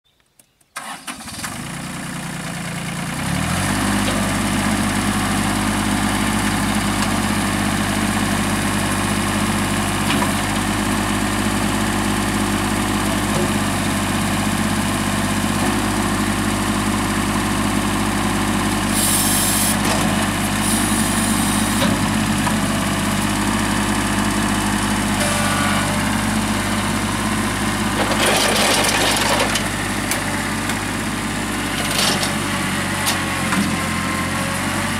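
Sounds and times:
tractor diesel engine running: 0.8 - 34.9
short bursts of hiss: 19.0 - 19.8.

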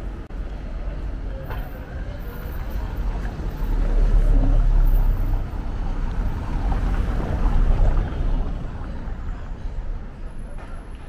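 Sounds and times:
city street noise: 0.0 - 11.0
car driving over cobblestones: 3.0 - 11.0.

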